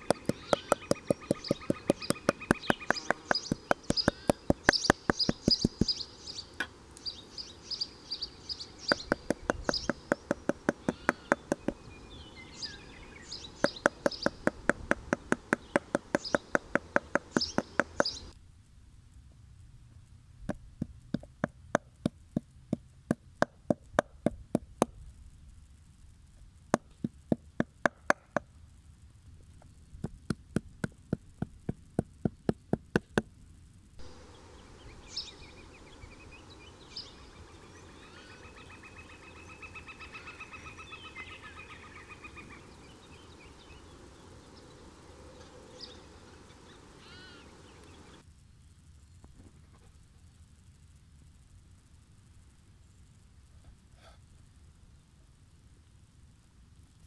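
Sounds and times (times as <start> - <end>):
mallet pounding meat on wood: 0.0 - 5.9, 8.9 - 11.8, 13.6 - 18.1
birds chirping: 0.0 - 18.4, 34.0 - 48.2.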